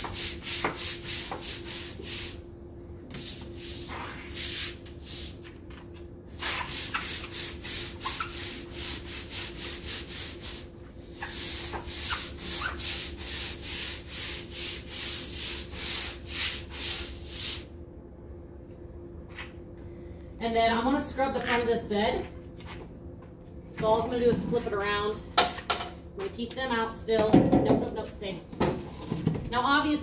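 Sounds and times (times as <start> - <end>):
scrub brush scrubbing wet floor: 0.0 - 2.4, 3.2 - 5.4, 6.3 - 17.7.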